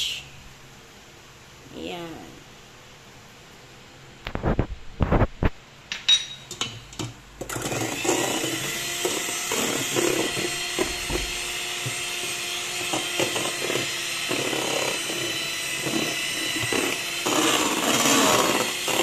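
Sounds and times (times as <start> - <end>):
utensils knocking steel bowl: 5.9 - 7.1
electric hand mixer whirring: 7.4 - 19.0.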